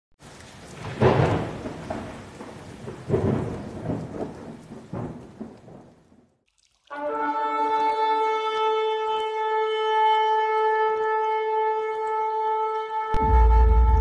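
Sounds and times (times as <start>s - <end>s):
steady rain: 0.2s - 6.4s
thunder rumbling: 0.3s - 6.3s.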